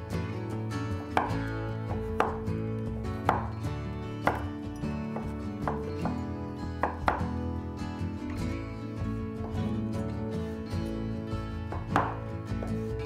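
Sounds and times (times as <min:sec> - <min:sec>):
soft guitar music: 0:00.0 - 0:13.0
knife chopping on wooden board: 0:01.0 - 0:02.5, 0:03.2 - 0:03.6, 0:04.2 - 0:07.4, 0:11.7 - 0:12.8.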